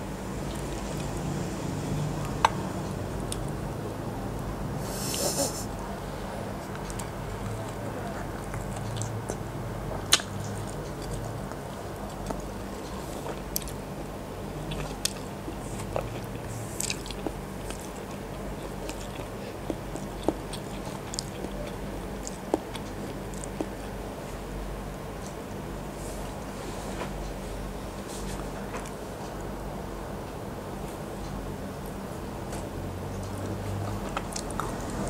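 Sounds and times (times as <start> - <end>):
steady low hum: 0.0 - 35.0
biting and chewing: 6.5 - 13.8, 14.5 - 24.0, 33.3 - 35.0.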